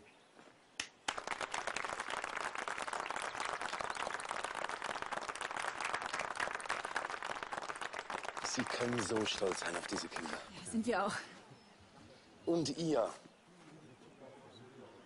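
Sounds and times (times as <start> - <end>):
crowd applauding: 1.1 - 10.6.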